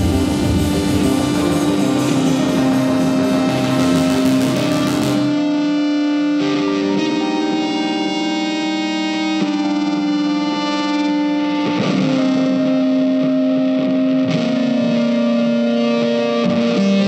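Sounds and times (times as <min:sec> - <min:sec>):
slow electric guitar melody: 0:00.0 - 0:17.0.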